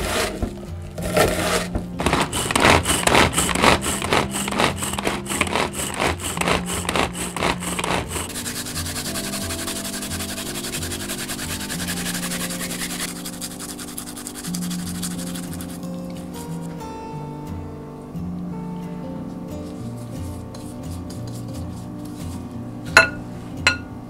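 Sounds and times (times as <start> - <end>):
knife chopping vegetables: 0.0 - 15.8
ginger rasping on a grater: 0.0 - 16.7, 19.9 - 22.4
background music: 0.0 - 24.0.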